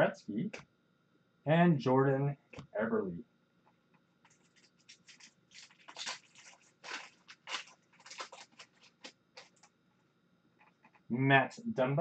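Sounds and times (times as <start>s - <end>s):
wrapper crinkling and tearing: 4.3s - 9.7s.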